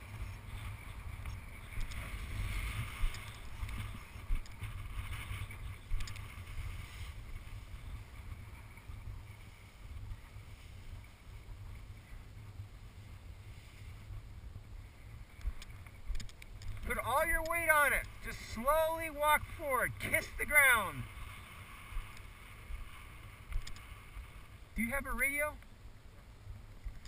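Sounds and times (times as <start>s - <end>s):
wind buffeting microphone: 0.0s - 24.9s.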